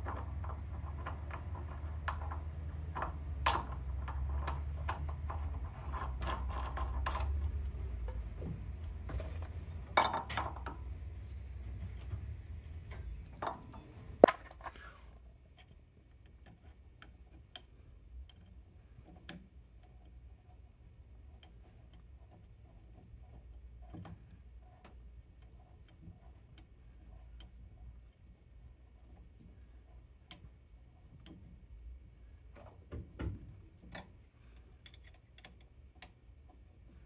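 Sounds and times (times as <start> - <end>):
metal tools clinking and knocking: 0.0 - 7.6, 9.9 - 11.7
low steady hum: 0.0 - 37.0.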